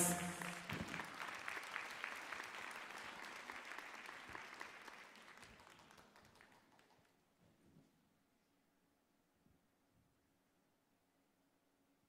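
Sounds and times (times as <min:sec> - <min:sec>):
audience applause: 0:00.0 - 0:07.0.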